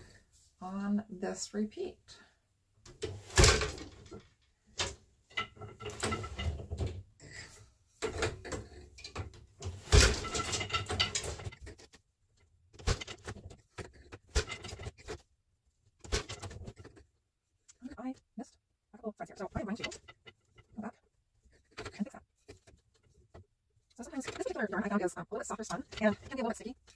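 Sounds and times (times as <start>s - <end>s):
loom knocking and rattling: 2.9s - 15.3s, 15.9s - 17.1s, 19.2s - 26.9s
loom treadles clunking: 3.0s - 7.0s, 8.0s - 11.9s, 12.8s - 15.2s, 19.3s - 20.9s, 24.0s - 26.9s.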